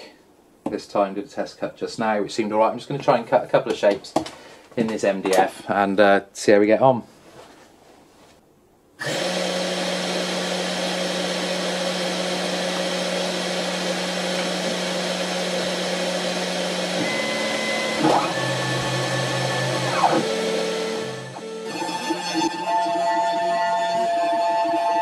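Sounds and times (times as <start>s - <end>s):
spindle motor humming: 9.0s - 24.7s
stepper motors whining: 9.0s - 25.0s.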